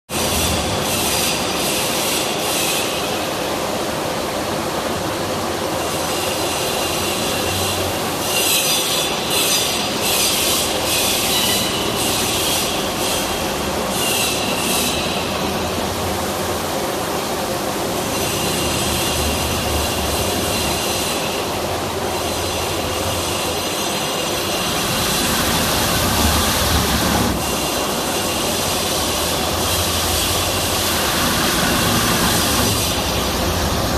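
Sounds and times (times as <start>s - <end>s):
high squealing hiss: 5.8s - 33.9s
polishing machine grinding stone: 18.0s - 33.9s.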